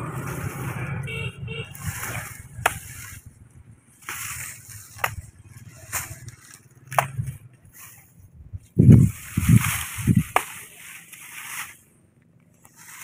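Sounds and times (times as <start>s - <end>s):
leaves rustling: 0.0s - 13.0s
blade chopping plant: 1.7s - 3.2s, 4.0s - 7.4s, 8.9s - 11.8s.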